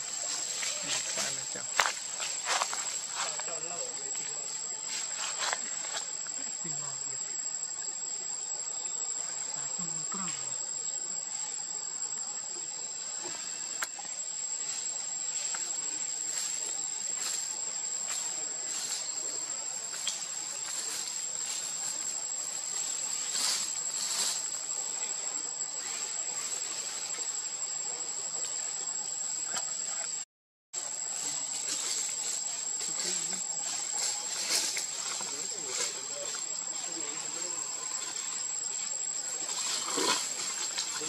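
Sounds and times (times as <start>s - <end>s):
faint low insect buzz: 0.0s - 41.0s
insects high-pitched drone: 0.0s - 41.0s.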